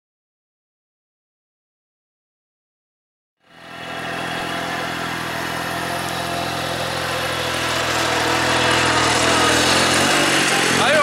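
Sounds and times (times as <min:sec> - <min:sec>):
engine running steadily: 0:03.4 - 0:11.0.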